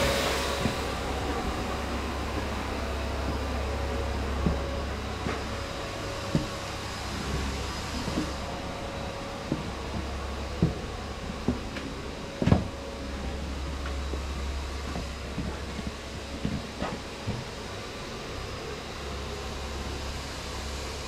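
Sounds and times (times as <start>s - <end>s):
mechanical hum and hiss: 0.0s - 21.0s.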